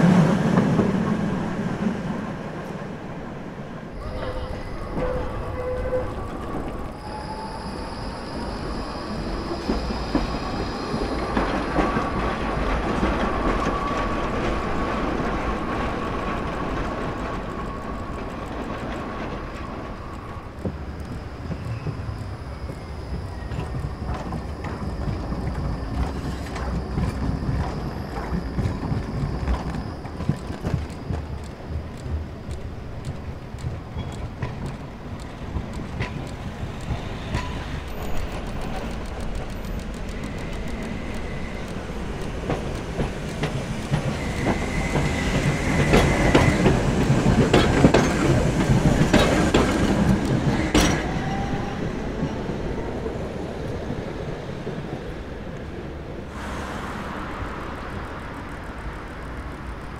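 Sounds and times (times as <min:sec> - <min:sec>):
tram rumbling on rails: 0:00.0 - 0:59.9
high wheel squeal: 0:04.0 - 0:14.9.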